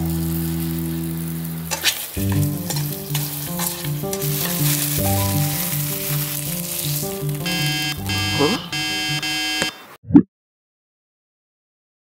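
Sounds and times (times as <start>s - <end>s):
sauce sizzling and splashing: 0.0s - 8.2s
music with bouncing bass line: 7.1s - 9.4s.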